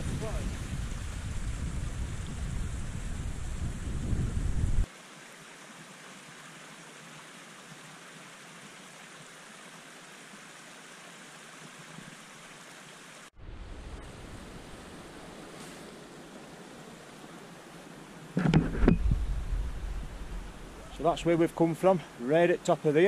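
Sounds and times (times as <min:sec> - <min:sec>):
wind buffeting microphone: 0:00.0 - 0:04.9, 0:18.4 - 0:21.2
stream splashing over rocks: 0:04.8 - 0:13.3.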